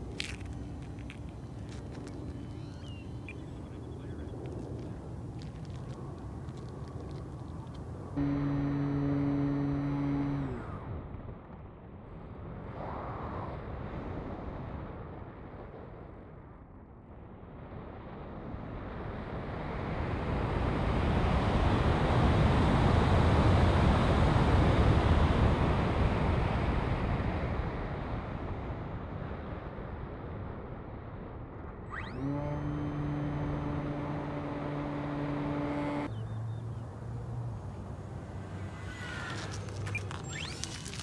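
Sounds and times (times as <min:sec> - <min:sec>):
electric motor whine: 0:08.2 - 0:10.9, 0:31.9 - 0:36.2, 0:37.3 - 0:41.0.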